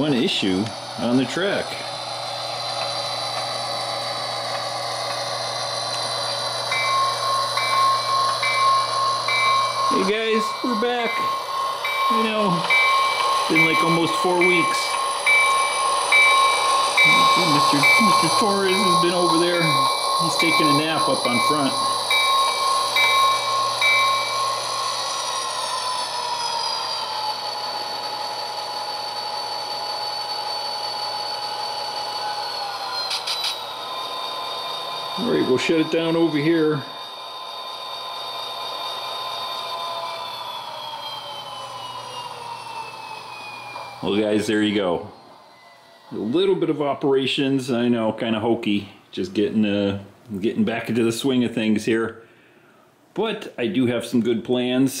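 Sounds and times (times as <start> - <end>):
model diesel engine sound from speaker: 0.0 - 45.3
model train wheels on rails: 0.0 - 48.4
repeating high tone: 6.7 - 24.6.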